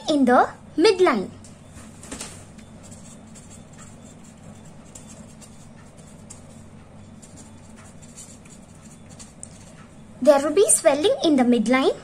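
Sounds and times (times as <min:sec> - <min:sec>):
low steady hum: 0:00.0 - 0:12.0
pen scratching on paper: 0:02.8 - 0:09.8.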